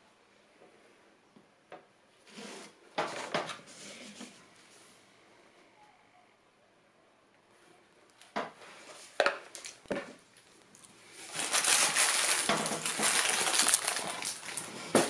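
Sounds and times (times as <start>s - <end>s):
crackling rustle: 8.1s - 15.0s.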